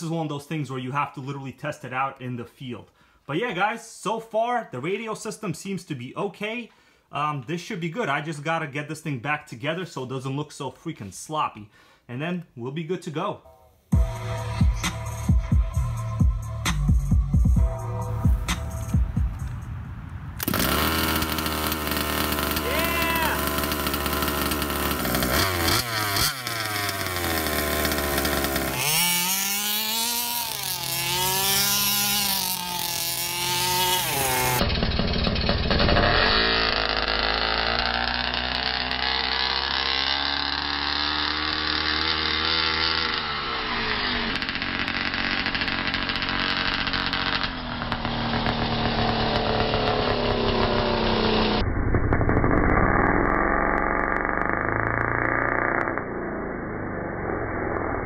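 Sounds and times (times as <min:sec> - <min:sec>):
two-stroke engine revving: 0:20.4 - 0:58.0.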